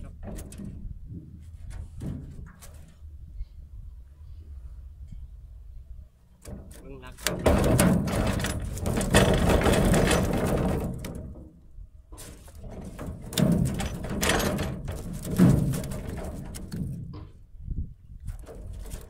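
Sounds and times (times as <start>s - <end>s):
fish trap knocking: 6.4s - 11.6s, 12.2s - 17.3s.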